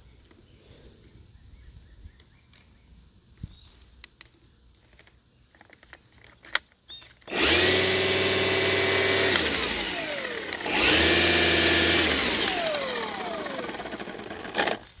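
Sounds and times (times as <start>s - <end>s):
string trimmer motor whining: 7.2s - 15.0s.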